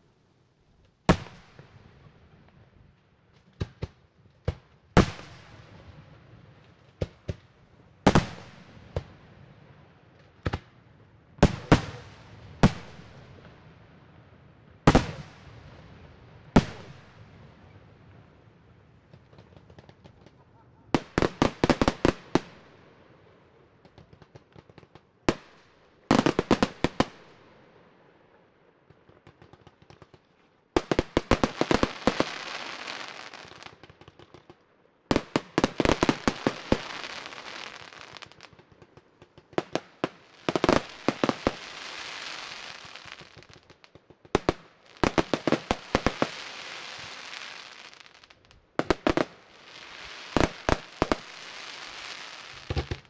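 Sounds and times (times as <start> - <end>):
firework hiss: 31.4 - 33.6, 40.2 - 43.4, 44.9 - 48.2, 49.0 - 53.0.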